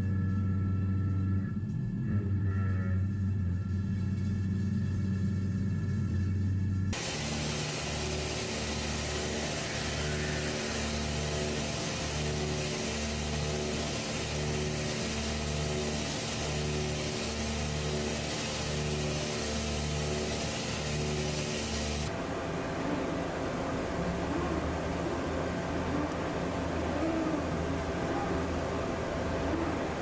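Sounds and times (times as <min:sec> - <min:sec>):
even hiss: 0:07.0 - 0:22.1.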